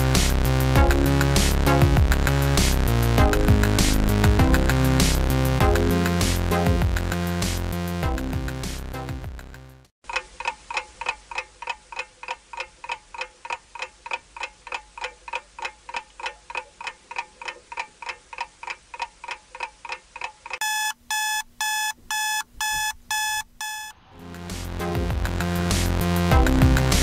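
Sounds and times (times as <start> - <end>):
clock ticking: 3.2 - 4.9, 10.0 - 23.9
alarm clock beeping: 20.6 - 24.0.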